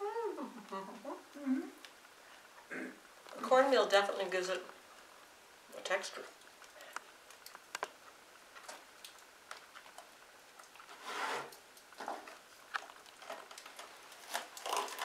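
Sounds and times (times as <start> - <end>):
rustle: 1.0 - 15.0
bread crust crackling under knife: 6.4 - 15.0.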